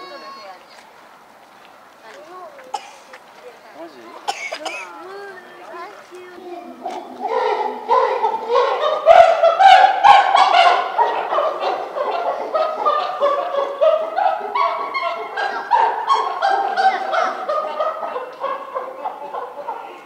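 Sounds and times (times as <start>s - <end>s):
chimpanzees hooting and barking: 6.4s - 20.0s.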